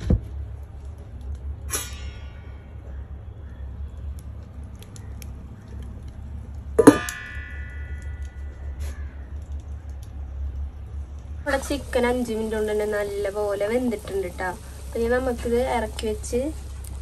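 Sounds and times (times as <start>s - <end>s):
low steady rumble: 0.0s - 17.0s
loud ringing metal clang: 1.7s - 2.8s, 6.8s - 8.8s
steel plate clinking on pot: 6.8s - 8.0s.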